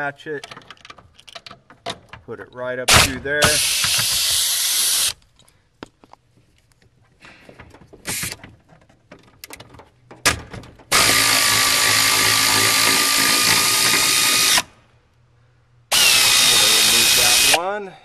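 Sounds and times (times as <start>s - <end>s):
pneumatic air ratchet whining: 2.9s - 5.2s, 8.0s - 8.4s, 10.9s - 14.7s, 15.9s - 17.6s.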